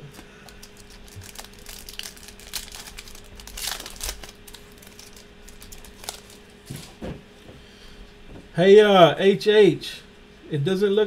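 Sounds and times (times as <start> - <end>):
foil wrapper crinkling: 0.1 - 6.9.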